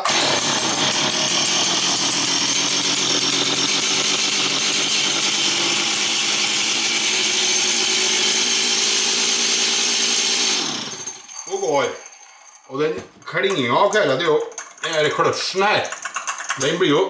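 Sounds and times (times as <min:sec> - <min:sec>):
chainsaw engine idling: 0:00.0 - 0:11.2.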